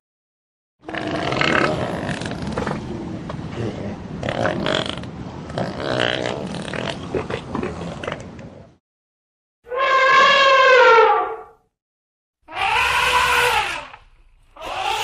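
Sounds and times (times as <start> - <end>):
elephants rumbling and growling: 0.8 - 8.8.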